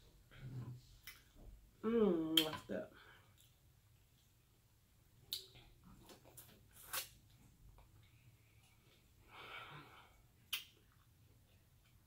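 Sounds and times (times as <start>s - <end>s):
mouth clicks and smacks: 5.2s - 7.2s, 10.4s - 11.1s.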